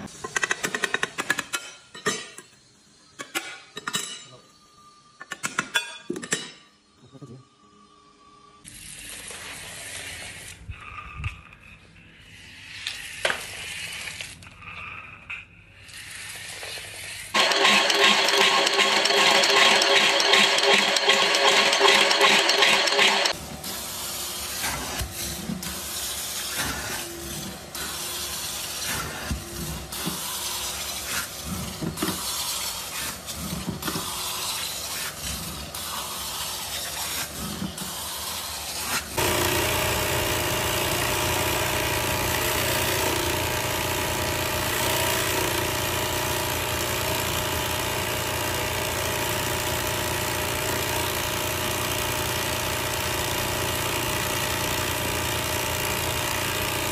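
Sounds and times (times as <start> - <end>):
carpet extraction wand suction: 39.2 - 47.5.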